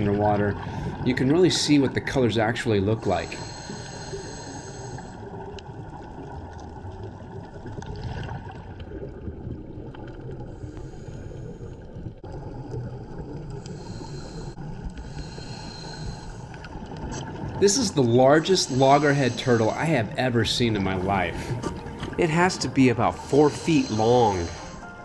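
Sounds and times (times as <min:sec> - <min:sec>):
muffled underwater rumble: 0:00.0 - 0:25.0
hiss: 0:03.3 - 0:05.1.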